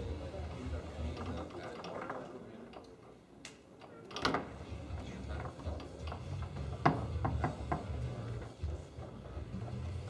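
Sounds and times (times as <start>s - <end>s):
foosball ball knocks and clicks: 6.4s - 8.0s.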